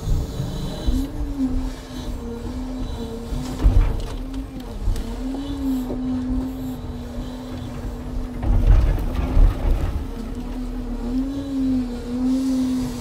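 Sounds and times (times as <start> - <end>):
low machinery rumble: 0.0 - 13.0
machinery whine: 0.0 - 13.0
deep thuds: 8.2 - 10.2.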